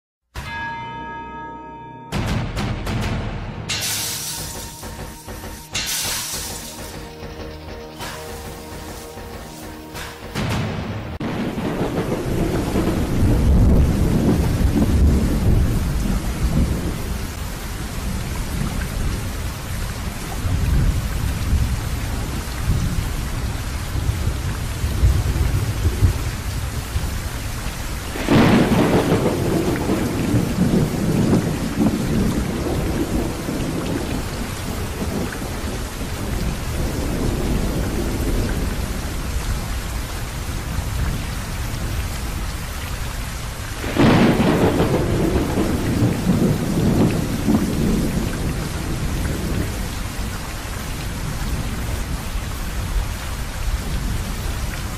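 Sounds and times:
steady rain: 3.7 - 54.9
loud thunder claps: 10.0 - 19.3, 28.1 - 39.7, 43.7 - 50.4.

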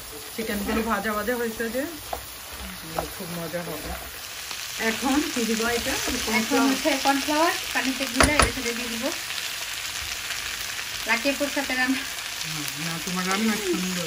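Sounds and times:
food sizzling in a frying pan: 0.0 - 14.0
spatula knocking against pan: 2.1 - 3.2, 8.2 - 8.7.

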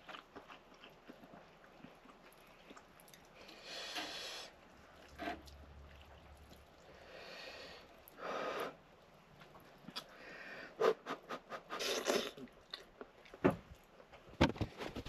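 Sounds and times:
person blowing breathy puffs: 10.6 - 12.4.

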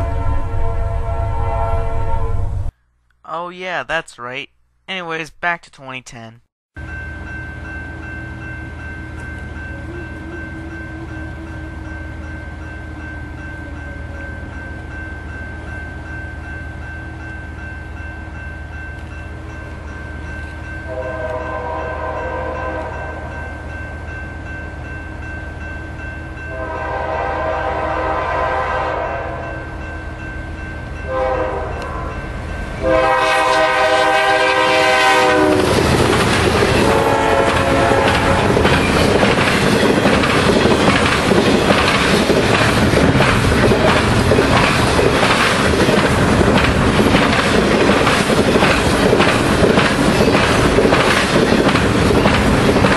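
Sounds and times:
locomotive air horn blasts: 0.0 - 2.7, 20.9 - 23.3, 26.5 - 29.5, 31.1 - 32.2, 32.8 - 35.8, 36.8 - 38.5
train rumbling past: 0.0 - 2.7, 6.8 - 52.9.

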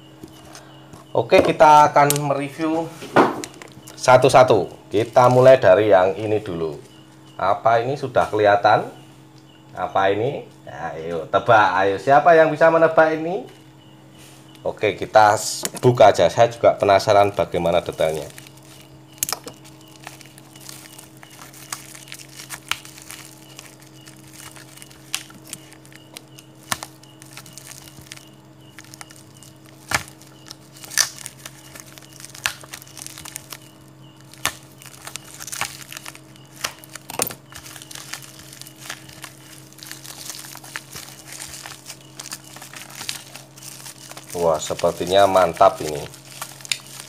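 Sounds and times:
steady low hum: 0.0 - 47.0
plastic wrapping crinkling: 3.1 - 5.6, 17.0 - 47.0
sharp snaps: 34.3 - 35.8.

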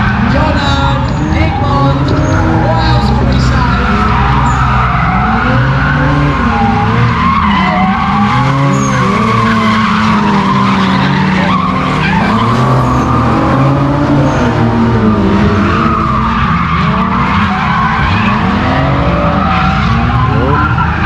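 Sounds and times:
car engines revving: 0.0 - 21.0
tyres squealing: 0.0 - 21.0.

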